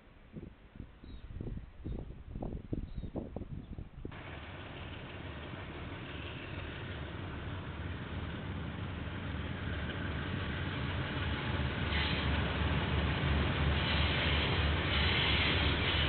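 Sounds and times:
diesel locomotive engine drone: 0.0s - 16.0s.

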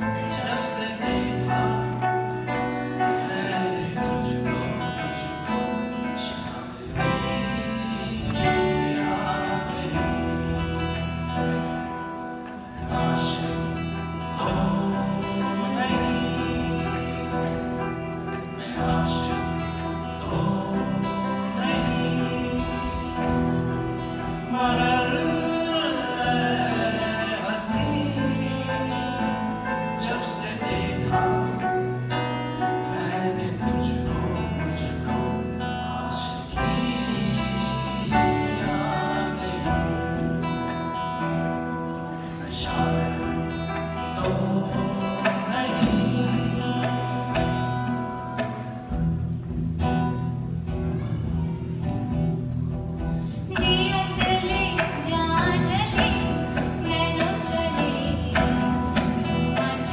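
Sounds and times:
person singing: 0.0s - 49.0s, 53.0s - 59.9s
acoustic guitar: 0.0s - 59.9s
bass guitar: 0.0s - 59.9s
keyboard: 0.0s - 59.9s.

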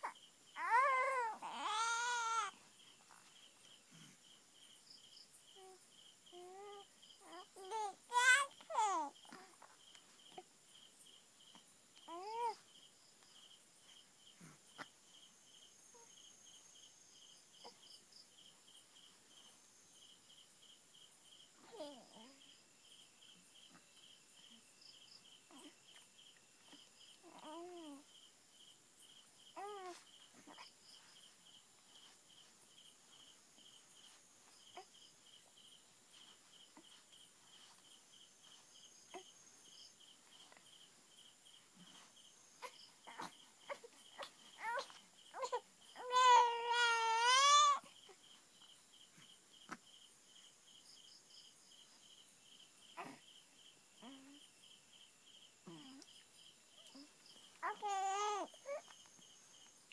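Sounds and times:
baby cooing: 0.0s - 2.5s, 5.6s - 9.6s, 12.1s - 12.6s, 26.7s - 28.0s, 29.6s - 30.6s, 42.6s - 47.9s, 53.0s - 53.2s, 56.8s - 58.9s
crickets chirping: 0.0s - 59.9s.

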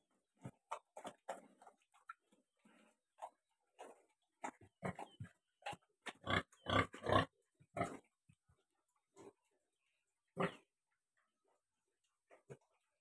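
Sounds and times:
pigs grunting: 2.7s - 8.1s, 10.3s - 10.7s.

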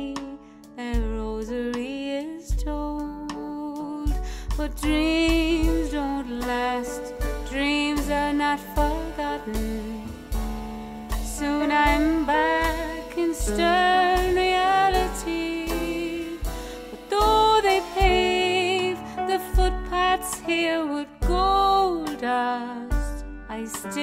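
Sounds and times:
woman singing with vibrato: 0.0s - 10.1s, 11.2s - 24.0s
drum kit played with sticks: 0.0s - 24.0s
upright piano: 3.0s - 24.0s
low beat: 4.1s - 20.6s.

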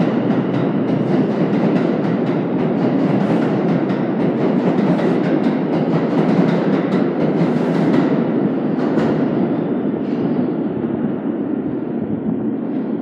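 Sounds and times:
wheels clacking over rail joints: 0.0s - 9.3s
subway train rumbling: 0.0s - 13.0s.

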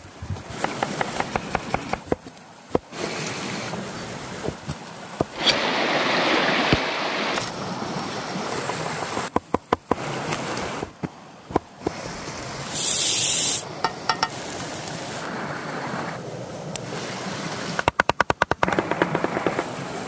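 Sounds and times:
stream rushing: 0.0s - 20.0s
brief hiss: 12.6s - 13.7s.

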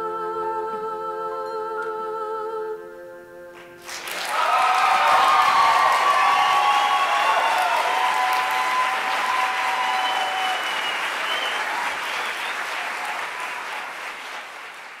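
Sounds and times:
audience applauding: 3.8s - 15.0s
people cheering: 3.9s - 15.0s.

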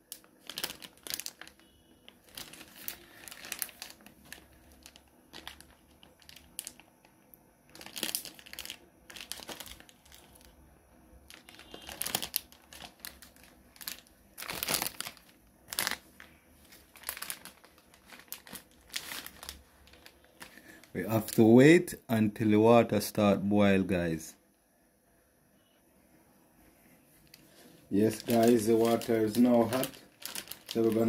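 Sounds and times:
plastic wrapper crinkling: 0.0s - 21.6s, 27.2s - 31.0s.

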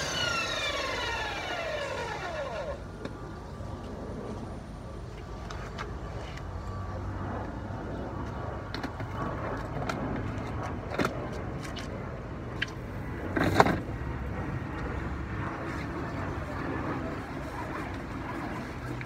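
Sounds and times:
pressure washer running: 0.0s - 2.8s.

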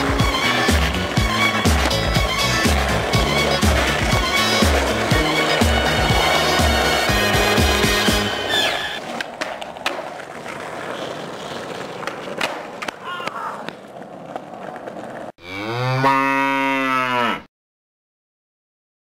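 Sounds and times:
skateboard clacking: 0.0s - 15.3s
skateboard wheels rolling on asphalt: 0.0s - 15.4s
cow mooing: 15.4s - 17.5s.

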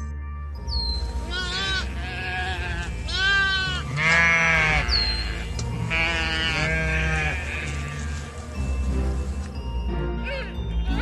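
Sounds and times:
sheep bleating: 1.3s - 8.3s.

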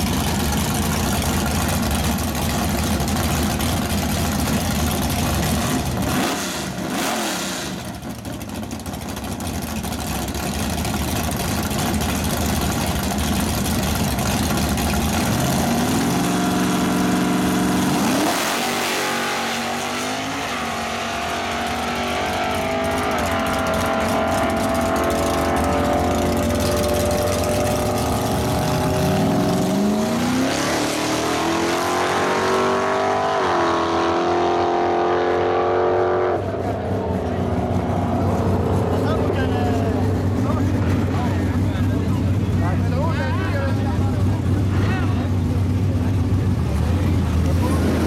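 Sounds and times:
race car engines revving: 0.0s - 48.0s.

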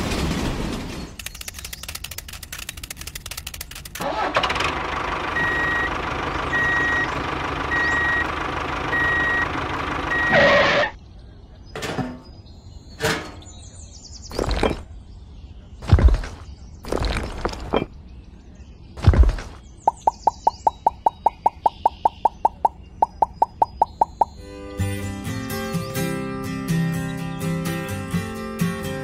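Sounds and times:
rapid clicking: 1.2s - 4.0s
reversing beeper: 5.4s - 8.3s, 8.9s - 9.5s, 10.1s - 11.0s.

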